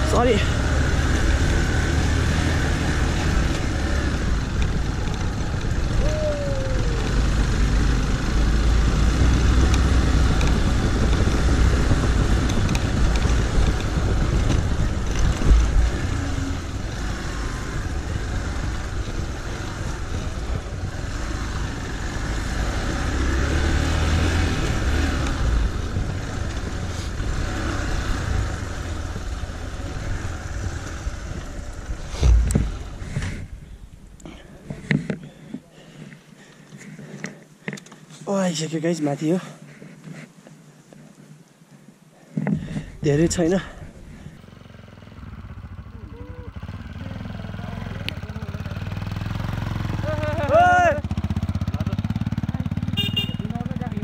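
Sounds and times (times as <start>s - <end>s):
motorcycle engine rumbling: 0.0s - 54.0s
heavy low thump: 32.0s - 33.6s.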